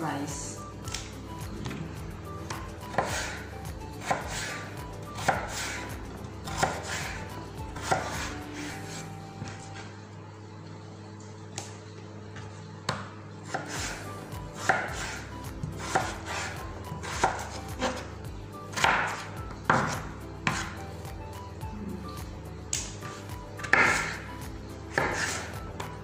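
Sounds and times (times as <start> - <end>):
knife slicing potato: 2.5 - 9.0, 13.4 - 20.8, 22.7 - 24.3, 24.9 - 26.0.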